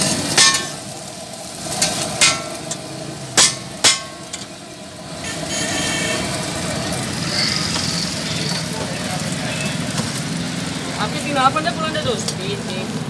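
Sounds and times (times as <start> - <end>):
spatula clanking on steel griddle: 0.0 - 0.9, 1.7 - 4.6.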